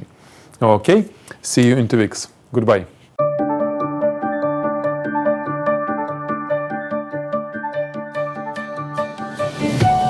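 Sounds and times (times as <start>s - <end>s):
background music with quick notes: 3.2s - 10.0s.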